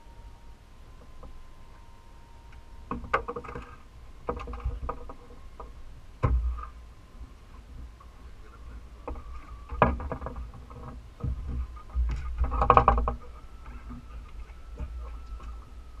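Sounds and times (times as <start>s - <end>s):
faint steady high tone: 0.0s - 16.0s
knocks and thumps on boat deck: 2.9s - 6.8s, 9.0s - 15.8s.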